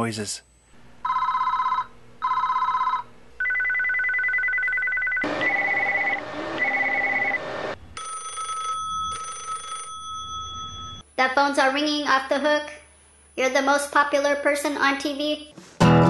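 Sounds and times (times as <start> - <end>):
two-tone telephone ring: 1.0 - 7.3, 8.0 - 11.0
multi-tone telephone ring: 1.0 - 7.4, 8.0 - 11.0
pulsing telephone ring: 1.0 - 7.4, 8.0 - 11.0
warbling electronic telephone ring: 1.0 - 7.4, 8.0 - 11.0.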